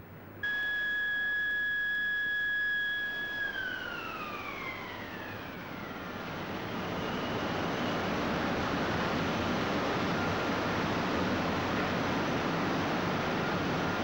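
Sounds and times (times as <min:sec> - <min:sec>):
high whine sliding down: 0:00.4 - 0:08.2.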